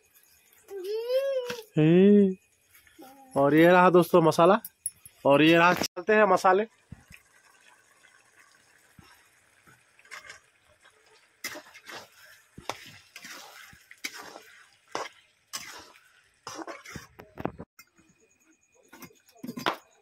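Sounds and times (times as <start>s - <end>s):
metal spatula scraping pan: 11.4s - 17.2s.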